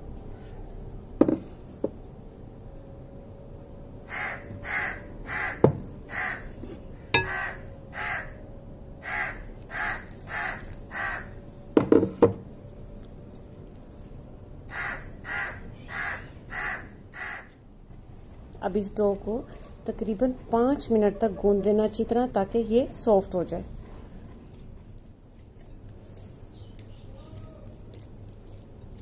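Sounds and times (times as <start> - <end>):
crow cawing: 4.1 - 6.5, 7.2 - 8.4, 9.0 - 11.4, 14.7 - 17.6.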